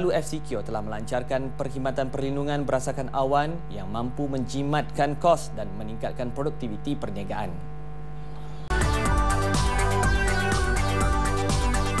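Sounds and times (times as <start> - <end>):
electronic music with beat: 8.4 - 12.0.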